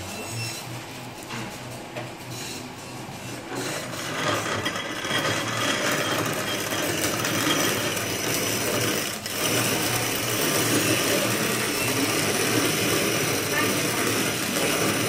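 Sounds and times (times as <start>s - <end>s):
manual coffee grinder grinding: 3.5s - 15.0s.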